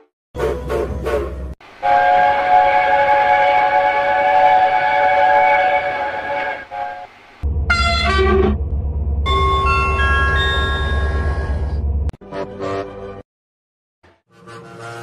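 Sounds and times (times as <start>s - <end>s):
low rumble with tones: 7.4s - 12.2s
train chime whistle: 9.3s - 11.7s.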